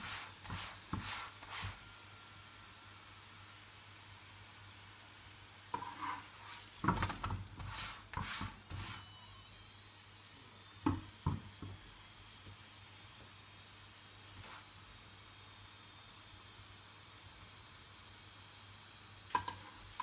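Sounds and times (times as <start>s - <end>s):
flatbread scraping on griddle: 5.7s - 9.0s.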